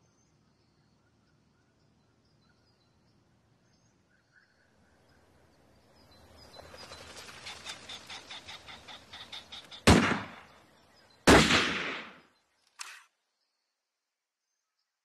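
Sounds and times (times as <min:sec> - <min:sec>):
shotgun shots: 0:09.8 - 0:10.6, 0:11.3 - 0:13.0.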